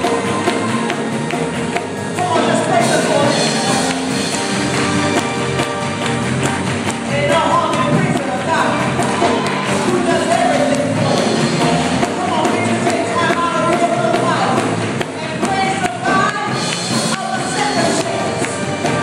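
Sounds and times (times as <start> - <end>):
hand claps: 0.0 - 2.4
live church music: 0.0 - 19.0
percussion beat: 0.0 - 19.0.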